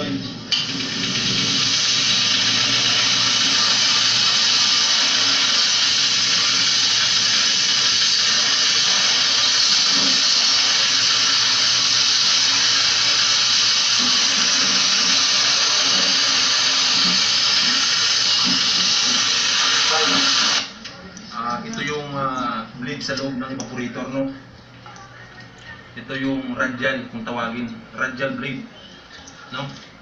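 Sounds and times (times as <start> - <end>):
hose water jet spraying metal: 0.5 - 20.7.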